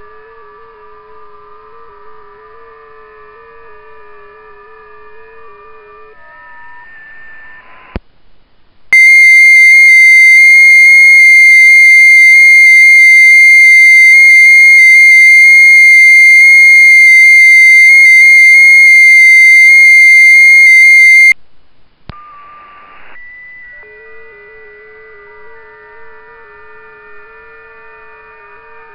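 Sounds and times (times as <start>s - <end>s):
loud steady digital tone: 22.8s - 28.9s.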